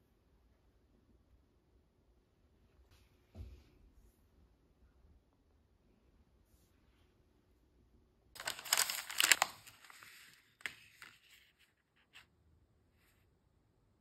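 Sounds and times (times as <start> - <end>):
packaging crinkling: 8.4 - 11.6.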